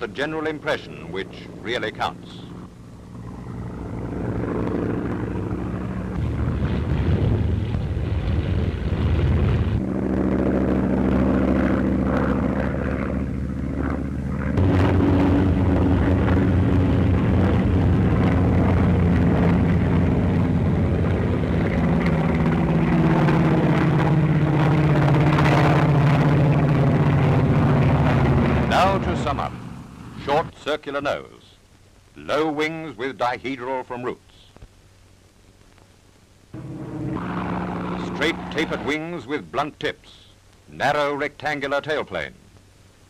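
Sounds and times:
propeller aircraft engine droning: 0.0 - 30.5, 36.6 - 40.2.

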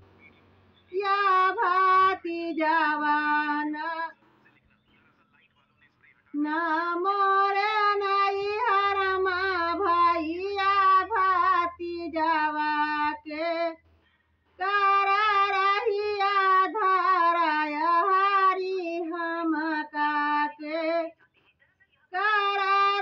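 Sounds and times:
woman singing unaccompanied: 0.9 - 4.1, 6.4 - 13.8, 14.6 - 21.2, 22.1 - 23.0.

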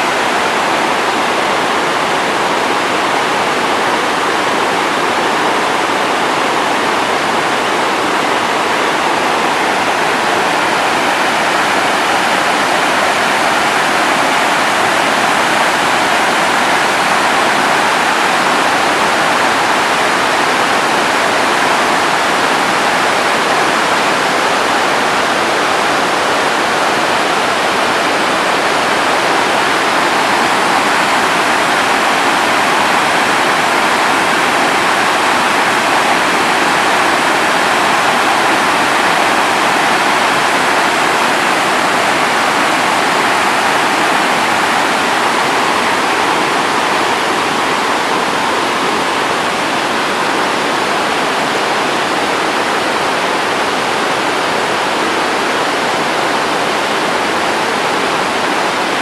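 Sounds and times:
waterfall rushing over rocks: 0.0 - 59.0.

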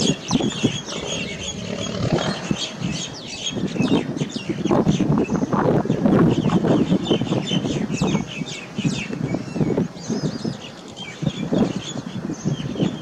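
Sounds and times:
small birds chirping: 0.0 - 13.0
loud choppy low rumble: 0.4 - 4.1.

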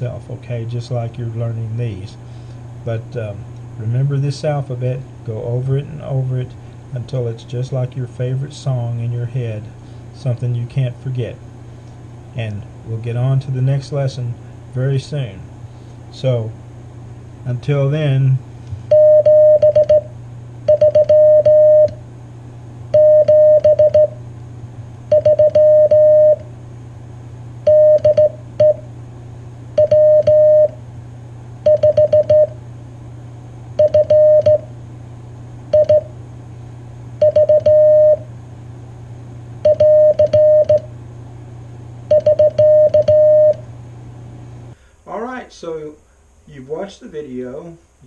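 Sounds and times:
low steady hum: 0.0 - 48.0
morse code beeps: 18.9 - 20.1, 20.7 - 22.0, 22.9 - 24.2, 25.1 - 26.4, 27.7 - 28.8, 29.8 - 30.8, 31.6 - 32.6, 33.8 - 34.7, 35.7 - 36.1, 37.2 - 38.2, 39.6 - 40.9, 42.1 - 43.6.

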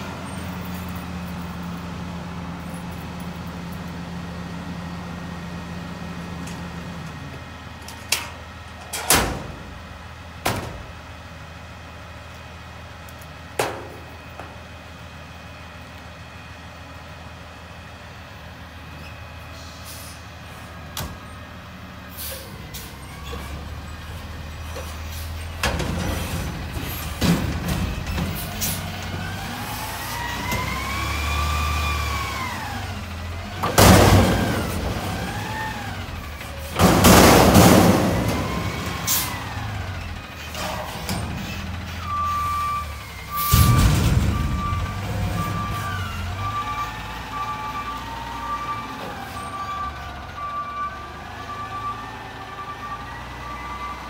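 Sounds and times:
truck engine idling and revving: 0.0 - 54.0
loud metal bang: 33.7 - 35.6, 36.8 - 39.2, 43.3 - 45.9.

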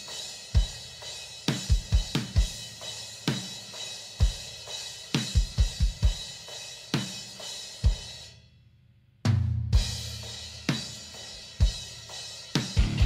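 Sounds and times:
bass drum: 12.8 - 13.0.

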